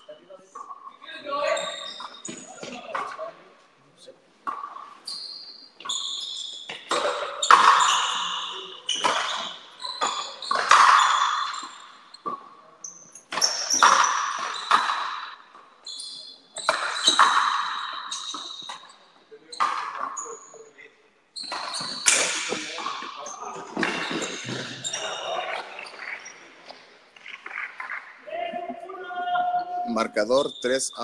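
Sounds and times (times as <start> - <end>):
shoe squeaks: 0.0 - 3.3, 4.5 - 28.0, 29.4 - 31.0
rackets hitting rubber ball: 8.9 - 12.4, 13.2 - 15.4, 21.4 - 25.0.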